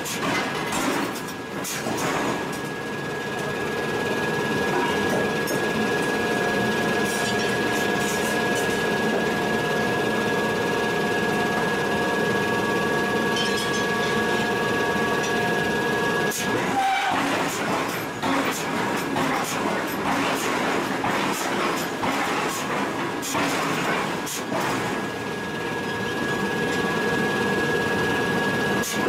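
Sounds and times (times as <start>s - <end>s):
machinery rattling: 0.0s - 27.2s
high steady whine: 0.0s - 29.0s
whining tones: 0.3s - 21.0s.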